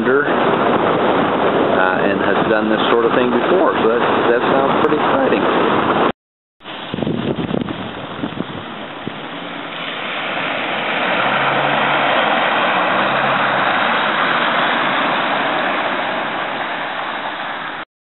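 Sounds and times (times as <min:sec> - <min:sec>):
tyres hissing through water: 0:07.8 - 0:17.8.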